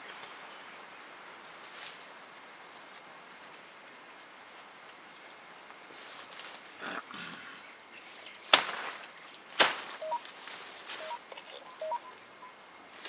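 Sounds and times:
sharp cracks: 0:08.5 - 0:10.0
faint chirps: 0:10.0 - 0:10.3, 0:10.9 - 0:13.0.

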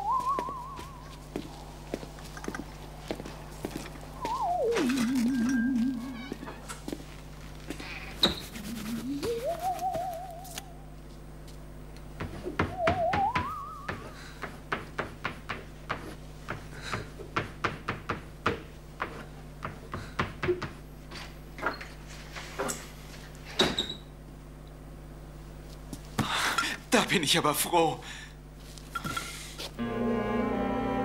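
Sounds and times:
wavering music gliding upward: 0:29.8 - 0:31.0.

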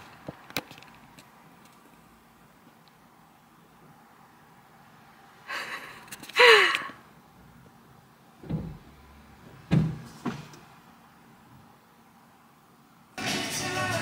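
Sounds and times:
dull thumps on car body: 0:09.7 - 0:10.5.

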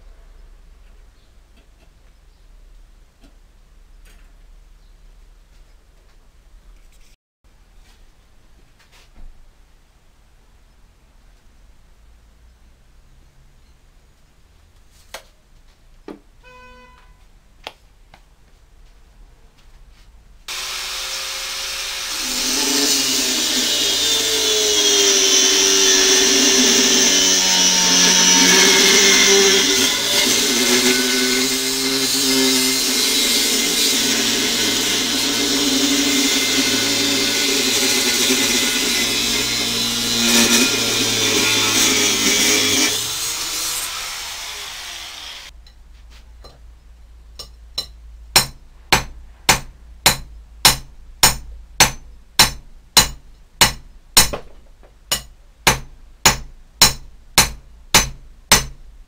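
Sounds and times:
angle grinder cutting steel: 0:20.5 - 0:45.6.

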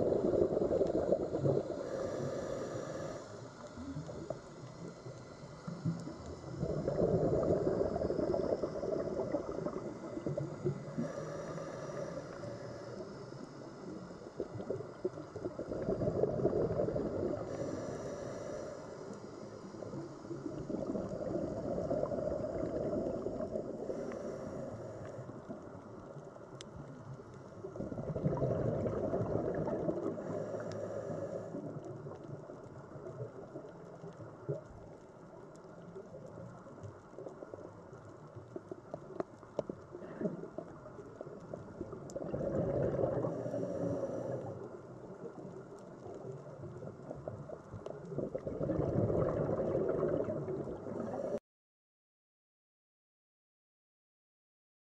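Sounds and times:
regulator bubbles gurgling: 0:00.0 - 0:18.0, 0:19.7 - 0:51.4
inhalation hiss: 0:00.0 - 0:25.5, 0:30.0 - 0:31.6, 0:43.2 - 0:44.6.

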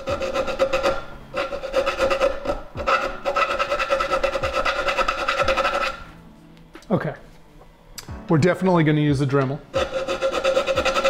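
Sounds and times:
file rasping on steel: 0:00.0 - 0:06.1, 0:09.7 - 0:11.0.

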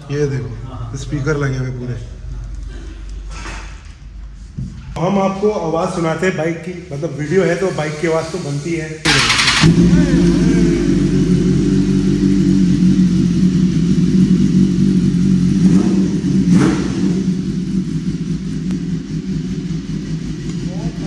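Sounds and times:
motorcycle engine idling: 0:09.1 - 0:21.0.

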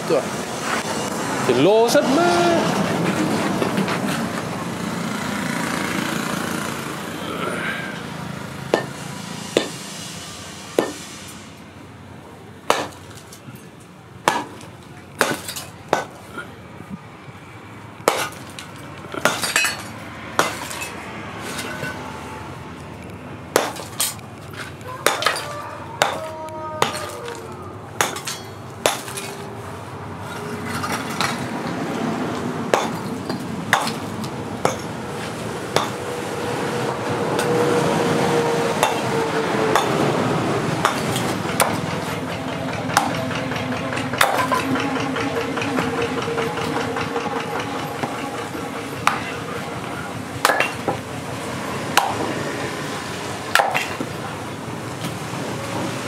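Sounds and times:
background drone: 0:02.7 - 0:56.0
hand tool smashing concrete block: 0:10.8 - 0:11.0, 0:12.7 - 0:13.6, 0:14.3 - 0:16.2, 0:18.1 - 0:22.0, 0:23.5 - 0:29.4, 0:32.7 - 0:34.9, 0:35.8 - 0:36.0, 0:40.8 - 0:41.8, 0:44.2 - 0:44.6, 0:50.4 - 0:51.0, 0:53.5 - 0:54.1.

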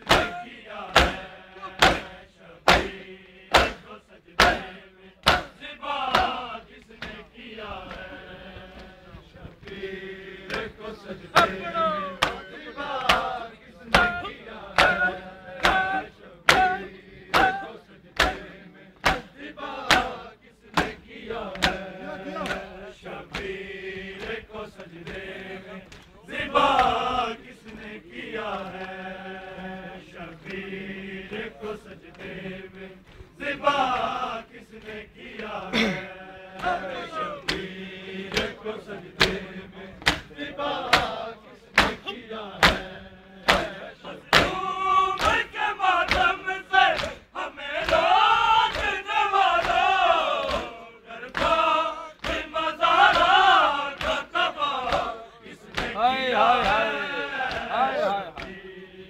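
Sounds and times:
hands slapping chests: 0:00.0 - 0:06.4, 0:12.2 - 0:14.2, 0:14.8 - 0:17.6, 0:18.2 - 0:20.2, 0:20.8 - 0:23.6, 0:35.4 - 0:38.6, 0:39.2 - 0:39.4, 0:40.0 - 0:41.2, 0:41.8 - 0:42.0, 0:42.6 - 0:45.5, 0:46.1 - 0:47.2, 0:48.7 - 0:51.6, 0:52.2 - 0:55.1, 0:55.7 - 0:56.0, 0:56.6 - 0:57.7
men chanting: 0:00.0 - 0:59.0.

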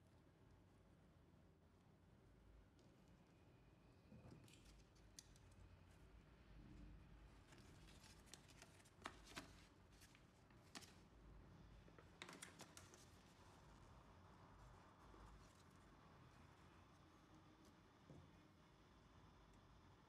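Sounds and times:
paper crackling and rustling: 0:07.4 - 0:11.2, 0:11.8 - 0:13.9.

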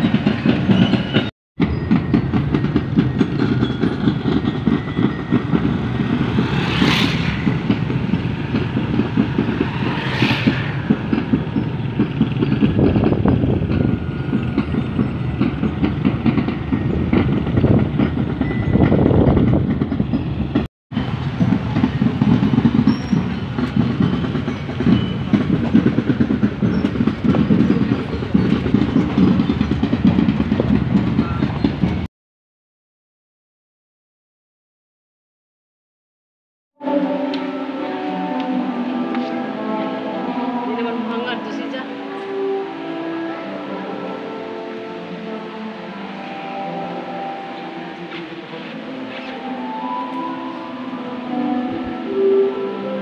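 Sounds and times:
rumble of vehicles moving: 0:00.0 - 0:32.1, 0:36.8 - 0:53.0.

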